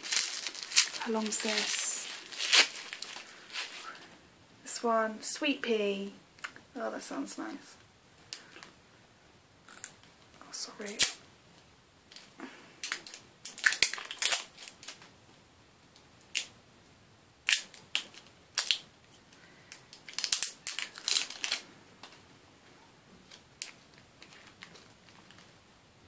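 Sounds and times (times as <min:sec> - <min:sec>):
plastic packaging crackling: 0:00.0 - 0:04.2, 0:12.1 - 0:15.1, 0:17.4 - 0:22.2, 0:23.2 - 0:25.6.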